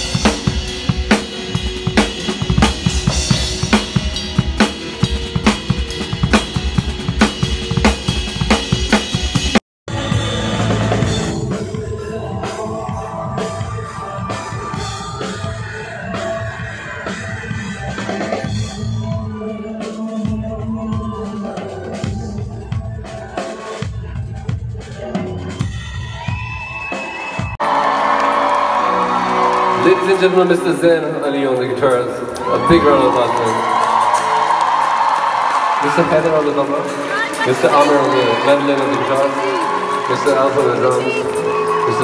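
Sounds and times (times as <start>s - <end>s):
acoustic drum kit playing: 0.0s - 27.6s
live band music with drums: 0.0s - 27.6s, 30.5s - 42.0s.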